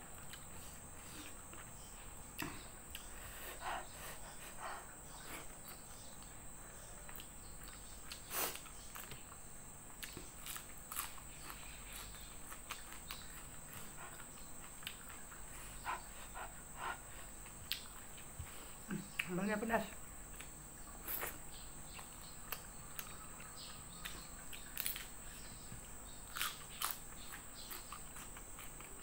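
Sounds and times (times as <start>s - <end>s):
high insect drone: 0.0s - 29.0s
chewing crunches and mouth clicks: 7.0s - 9.4s, 10.0s - 15.6s, 20.2s - 29.0s.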